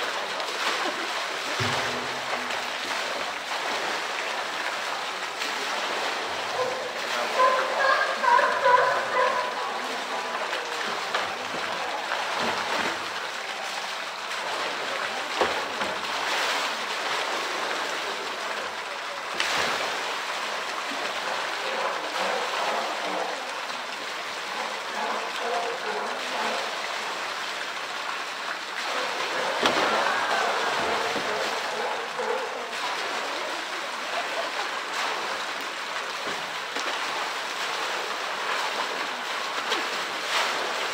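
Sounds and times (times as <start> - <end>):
splashing water: 0.0 - 40.9
water pouring into a pool: 0.0 - 40.9
plastic barrel knocking on ledge: 1.6 - 2.5.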